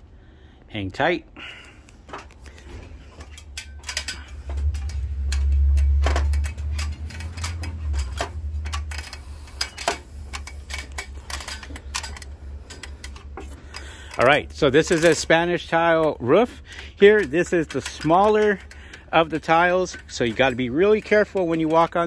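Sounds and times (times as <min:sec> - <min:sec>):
metallic taps on ladder rungs: 0:02.0 - 0:22.0
low rumble: 0:04.2 - 0:12.7.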